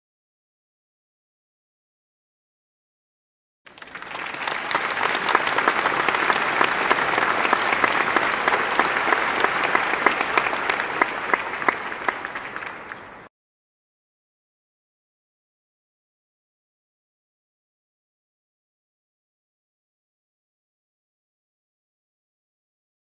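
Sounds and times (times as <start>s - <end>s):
crowd applauding: 3.7s - 13.3s.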